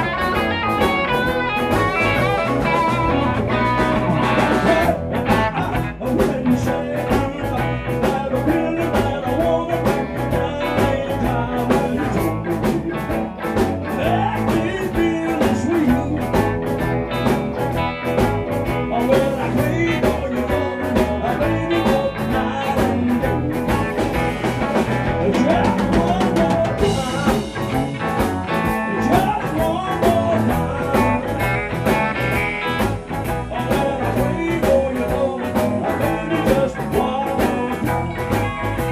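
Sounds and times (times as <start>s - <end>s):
lead guitar bending in pitch: 0.0s - 5.8s
live rock band playing: 0.0s - 38.9s.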